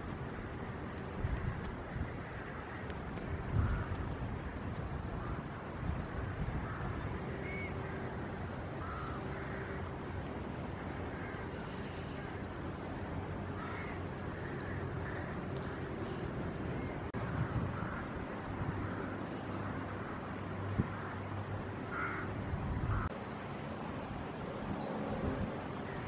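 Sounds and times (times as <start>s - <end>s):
wind on microphone: 0.0s - 8.8s, 15.7s - 19.2s, 20.6s - 23.1s, 24.4s - 26.0s.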